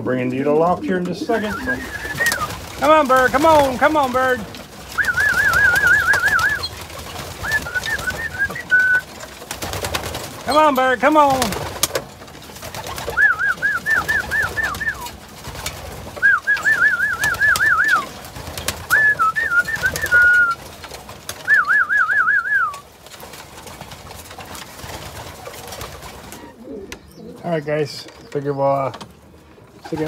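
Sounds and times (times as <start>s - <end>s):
person whistling trilled calls: 1.4s - 2.5s, 5.0s - 6.7s, 7.4s - 9.1s, 13.1s - 15.1s, 16.2s - 18.1s, 18.9s - 20.6s, 21.4s - 22.8s.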